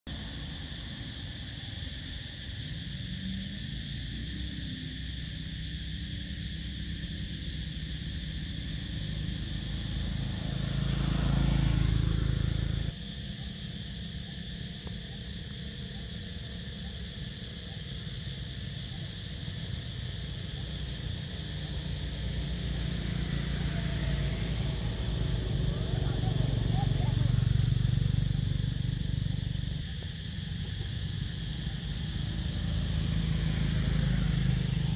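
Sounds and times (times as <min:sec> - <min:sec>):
motorbike approaching: 0:00.1 - 0:34.9
engine-like swell: 0:06.6 - 0:12.9, 0:21.5 - 0:34.9.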